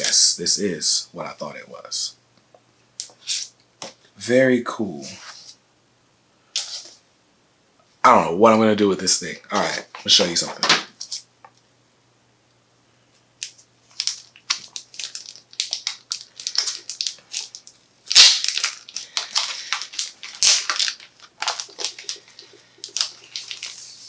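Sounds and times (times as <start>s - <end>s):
packaging crinkling and rustling: 13.4s - 24.0s.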